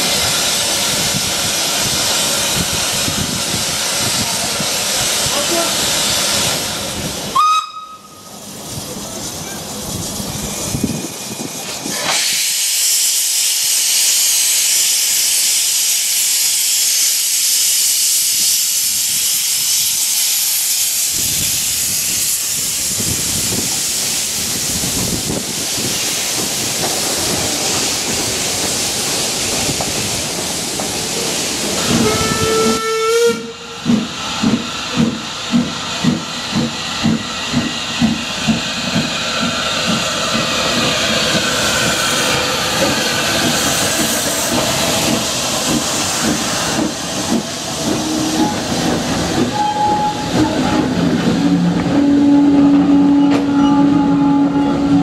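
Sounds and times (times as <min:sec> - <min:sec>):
steam hissing from locomotive: 0:00.0 - 0:55.0
steam locomotive exhaust beats: 0:00.0 - 0:55.0
steam whistle blast: 0:07.3 - 0:08.3, 0:31.8 - 0:33.7, 0:48.0 - 0:48.7, 0:49.4 - 0:51.0, 0:51.6 - 0:55.0.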